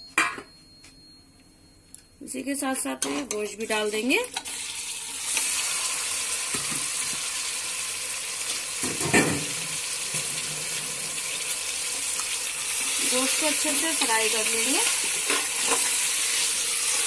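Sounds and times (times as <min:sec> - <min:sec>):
meat sizzling in hot oil: 0:04.4 - 0:17.0.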